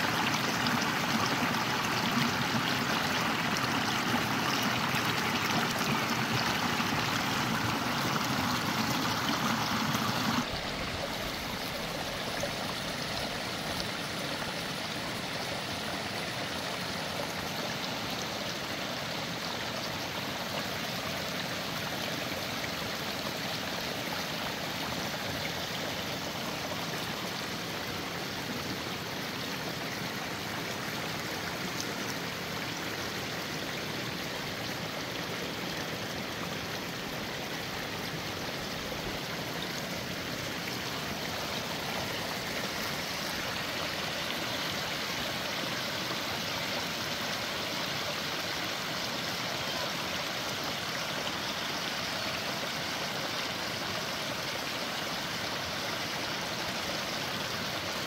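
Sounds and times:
brook splashing over rocks: 0:00.0 - 0:14.7.

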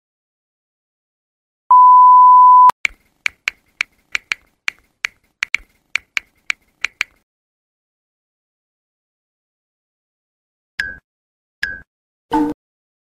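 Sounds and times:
high test-pattern beep: 0:01.7 - 0:02.7
keyboard typing clicks: 0:02.9 - 0:07.2.

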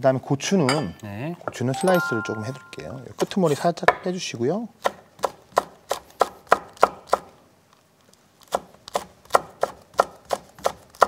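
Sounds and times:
knife chopping on wooden board: 0:04.8 - 0:07.3, 0:08.5 - 0:11.0.

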